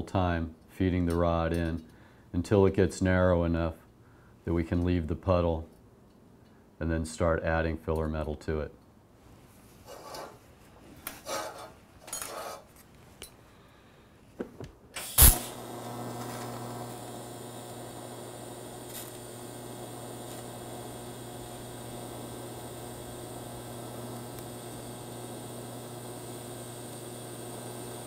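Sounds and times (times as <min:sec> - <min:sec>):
welding arc crack: 0:15.0 - 0:28.0
welding arc humming and hissing: 0:15.0 - 0:28.0.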